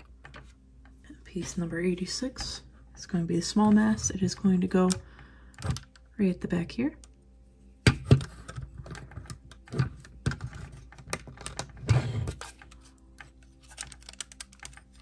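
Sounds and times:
plastic puzzle pieces clicking: 0:08.2 - 0:15.0.

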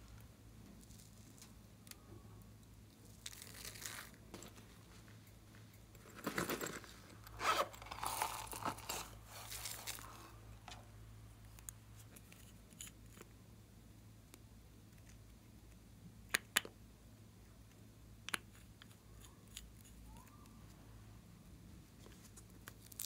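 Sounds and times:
faint steady hum: 0:00.0 - 0:23.0
plastic packaging crinkling and tearing: 0:03.1 - 0:04.2, 0:06.1 - 0:10.2, 0:22.6 - 0:23.0.

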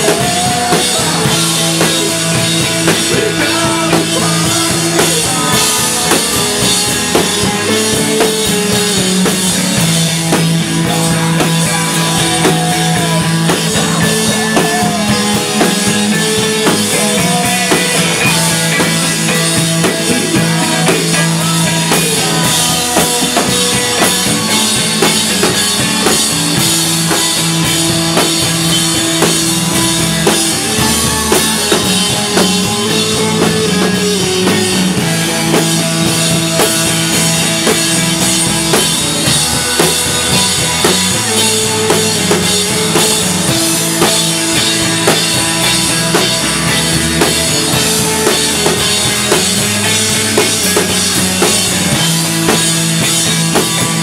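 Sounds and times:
drum kit cymbal and snare: 0:00.0 - 0:54.0
electric guitar: 0:00.0 - 0:54.0
rock band playing live: 0:00.0 - 0:54.0.

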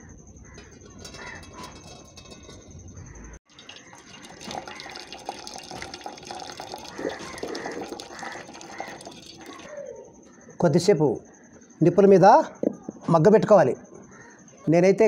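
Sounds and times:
water pouring into a steel bowl: 0:03.4 - 0:09.7.

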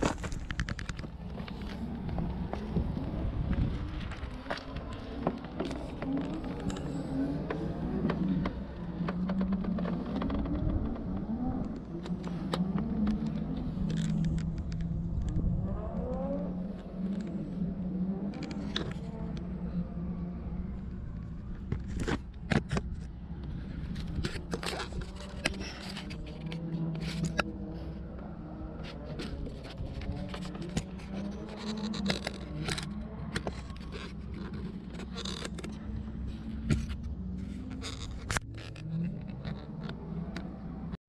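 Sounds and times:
camera handling scrapes and knocks: 0:21.6 - 0:23.1, 0:23.8 - 0:27.5, 0:28.8 - 0:38.5.

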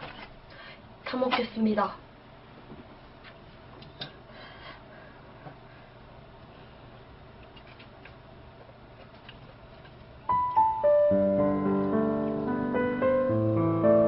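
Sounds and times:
piano music: 0:10.3 - 0:14.0.

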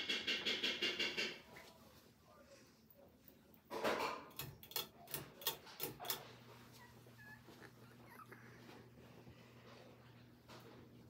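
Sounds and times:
fan motor hum: 0:04.3 - 0:11.0.

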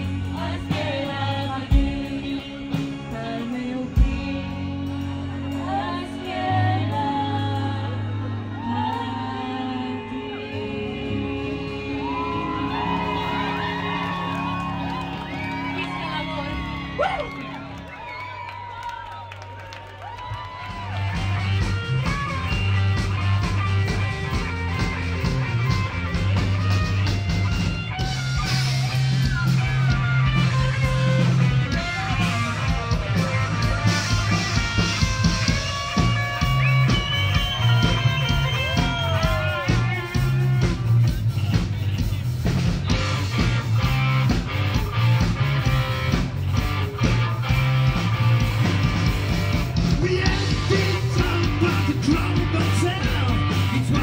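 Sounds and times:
electric guitars: 0:00.0 - 0:54.0
heavy bass line: 0:20.4 - 0:54.0
steady drum beat: 0:20.5 - 0:54.0.

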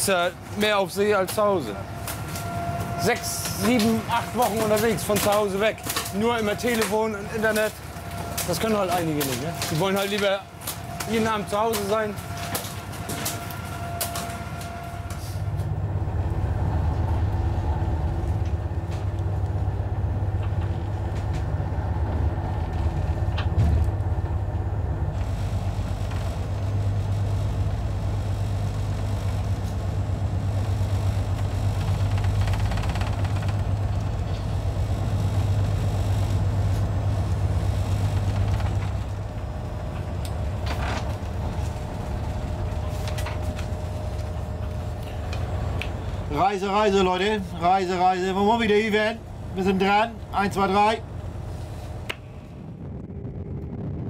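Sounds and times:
boat engine droning: 0:00.0 - 0:54.0.

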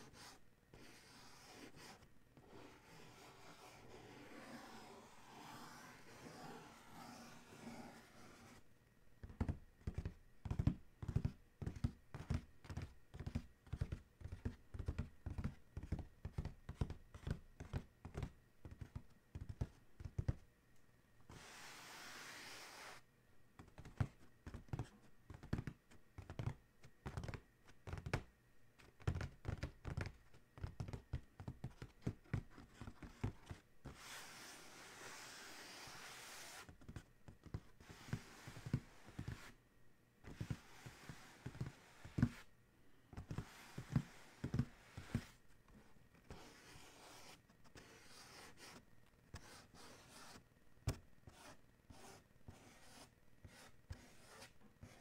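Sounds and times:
nails scratching cardboard: 0:00.0 - 0:08.6.

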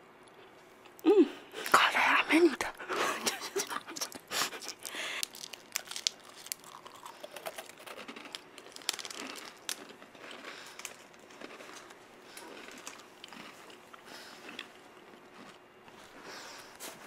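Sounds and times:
plastic candy wrapper crinkling: 0:03.4 - 0:13.8.

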